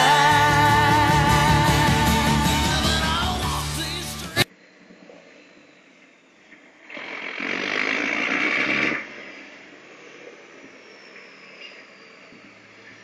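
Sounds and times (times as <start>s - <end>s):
faint falling whine: 9.0s - 13.0s.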